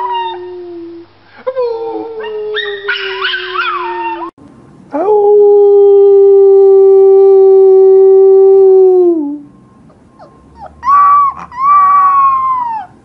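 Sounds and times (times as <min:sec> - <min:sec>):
puppy howling: 0:00.0 - 0:01.0, 0:01.8 - 0:04.3, 0:10.2 - 0:13.0.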